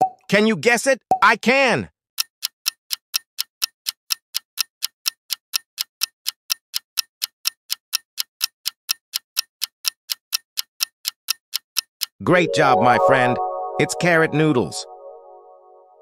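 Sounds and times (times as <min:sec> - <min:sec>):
clock-like timer ticking: 0:02.2 - 0:12.3.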